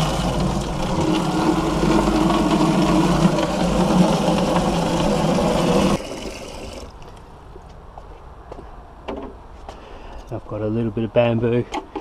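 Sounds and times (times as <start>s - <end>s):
water running into a watering can: 0.0s - 7.0s.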